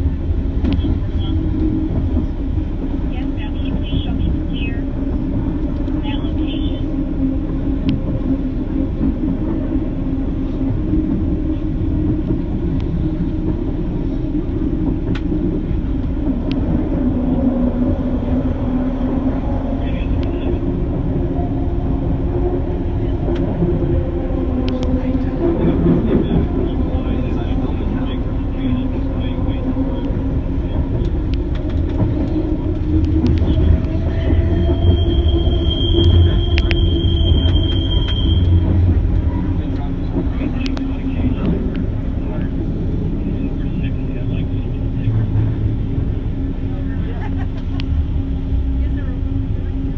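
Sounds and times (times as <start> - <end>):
train rumble with low hum: 0.0 - 49.9
high wheel squeal: 33.4 - 39.7.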